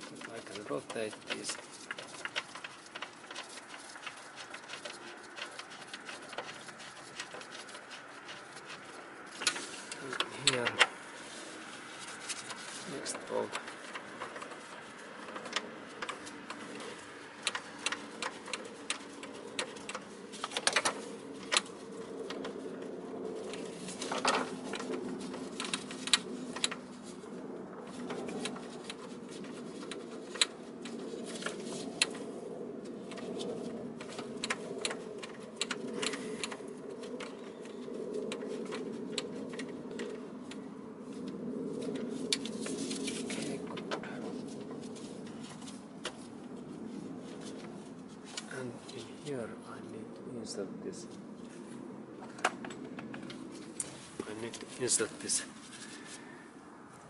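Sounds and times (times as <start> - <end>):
bolts clicking and tapping: 0.0 - 11.1, 11.9 - 22.7
steady low hum: 0.0 - 57.0.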